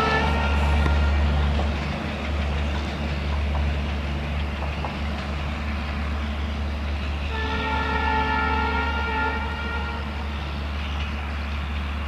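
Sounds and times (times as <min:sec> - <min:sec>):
train coaches rumbling on rails: 0:00.0 - 0:12.0.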